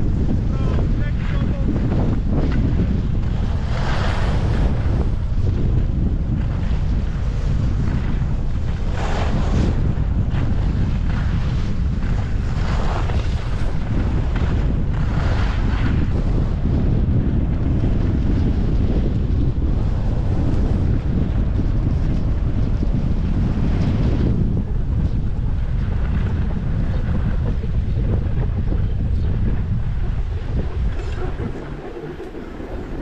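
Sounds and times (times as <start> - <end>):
skis scraping packed snow: 0.0 - 16.7, 17.6 - 33.0
wind buffeting microphone: 0.0 - 33.0.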